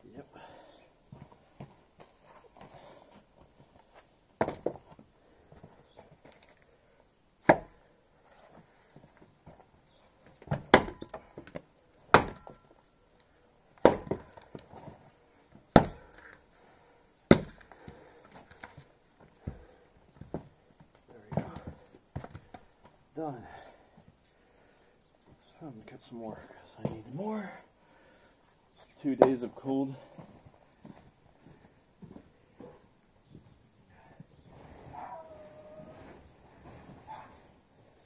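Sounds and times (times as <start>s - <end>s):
axe splitting log: 7.4s - 7.8s, 10.5s - 12.7s, 13.8s - 14.7s, 15.7s - 16.1s, 17.3s - 17.9s.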